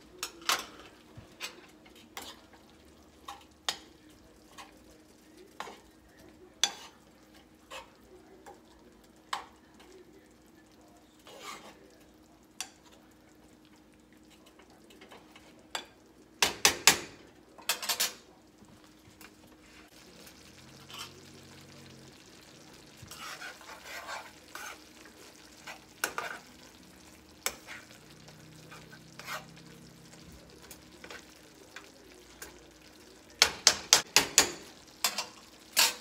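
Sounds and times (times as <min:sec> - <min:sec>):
faint pan sizzle: 0:00.0 - 0:36.0
utensils clacking against pans: 0:00.1 - 0:04.8, 0:14.4 - 0:18.3, 0:19.2 - 0:36.0
spoon stirring and scraping sauce: 0:00.2 - 0:08.7, 0:11.0 - 0:16.0, 0:17.5 - 0:36.0.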